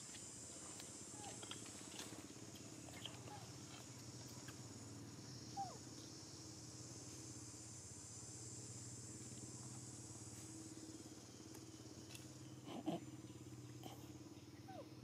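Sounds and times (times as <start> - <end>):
low engine-like hum: 0.0 - 15.0
steady high hiss: 4.1 - 15.0.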